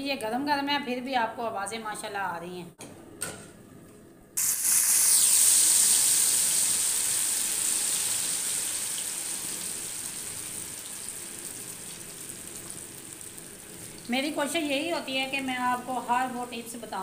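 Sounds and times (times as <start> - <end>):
oil bubbling: 4.4 - 16.8
fries sizzling in hot oil: 4.4 - 17.0.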